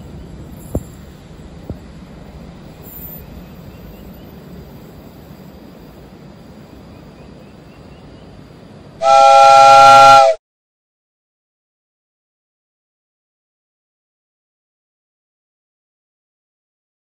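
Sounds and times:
faint train rumble: 0:00.0 - 0:10.4
loud multi-tone train horn: 0:09.0 - 0:10.4.

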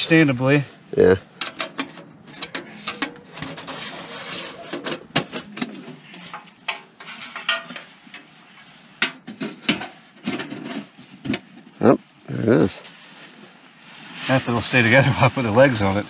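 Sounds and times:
metal panels clinking and scraping: 0:01.4 - 0:11.6.

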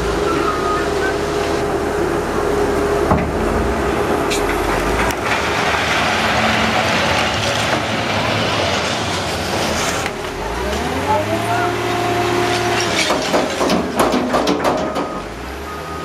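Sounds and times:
diesel engine running: 0:00.0 - 0:16.0
debris rattling and clattering: 0:04.0 - 0:10.9, 0:12.5 - 0:15.2
bucket scraping debris: 0:04.3 - 0:10.9.

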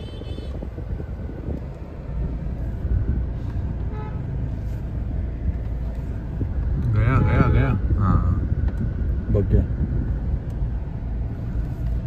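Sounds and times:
car horn toot: 0:00.0 - 0:00.7, 0:03.8 - 0:04.3, 0:07.0 - 0:07.6
car engine: 0:00.0 - 0:12.0
road rumble: 0:00.0 - 0:12.0.

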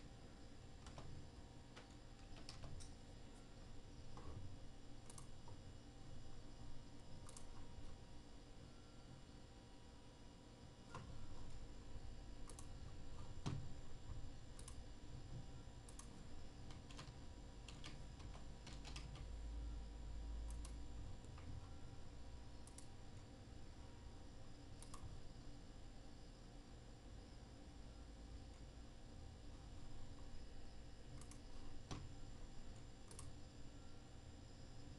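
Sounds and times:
low steady hum: 0:00.0 - 0:34.9
mouse and keyboard clicks: 0:07.2 - 0:07.6.

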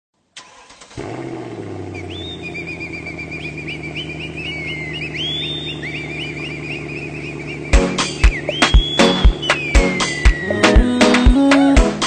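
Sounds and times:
high warbling whistle-like trills: 0:02.0 - 0:10.6
low bass drone: 0:02.8 - 0:11.0.

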